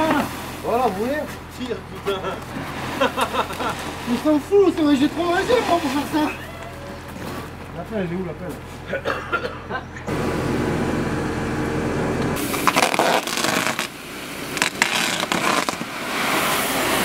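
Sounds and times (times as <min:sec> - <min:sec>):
gravel pouring onto gravel: 0:00.0 - 0:06.3, 0:12.4 - 0:17.0
steady machine hum: 0:00.0 - 0:12.8.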